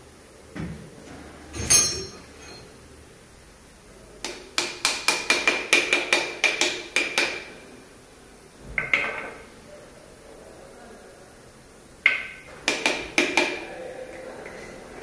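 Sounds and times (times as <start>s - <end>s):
ringing metallic clink: 1.6s - 2.7s.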